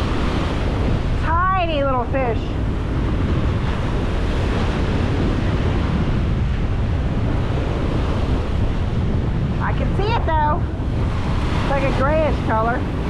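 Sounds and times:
ocean surf washing up beach: 0:00.0 - 0:13.0
wind buffeting microphone: 0:00.0 - 0:13.0.

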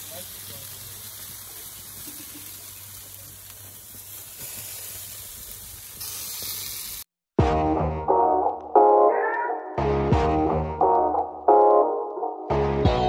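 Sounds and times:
meat sizzling on grill: 0:00.0 - 0:07.1
music: 0:07.4 - 0:13.0.

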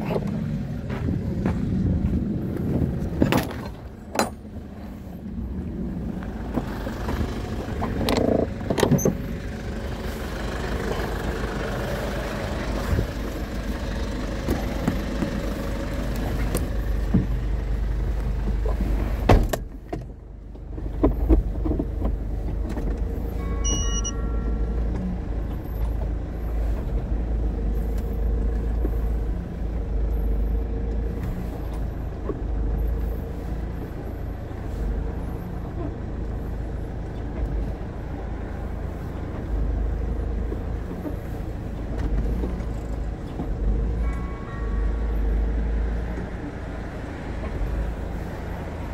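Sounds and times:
truck engine rumbling: 0:00.0 - 0:48.9
car door shutting with thud: 0:19.2 - 0:19.7
short electronic chime: 0:23.4 - 0:24.8.

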